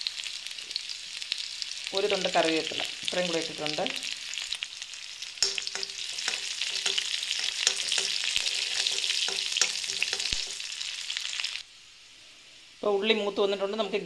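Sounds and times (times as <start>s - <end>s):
food sizzling in hot oil: 0.0s - 14.0s
spatula knocking pan: 5.4s - 10.7s
spatula scraping pan: 5.4s - 10.8s.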